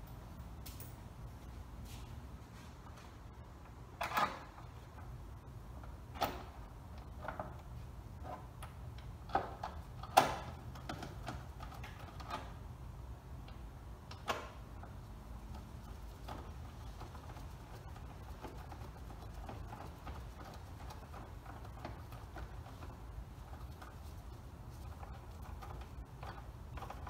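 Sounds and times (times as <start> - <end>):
light clicks and knocks from parts: 0.0 - 12.7, 13.4 - 27.0
low steady hum: 0.0 - 27.0.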